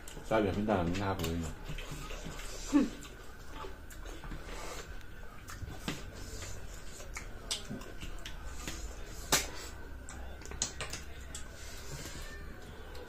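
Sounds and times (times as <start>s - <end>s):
eating smacks and clicks: 5.0s - 11.6s.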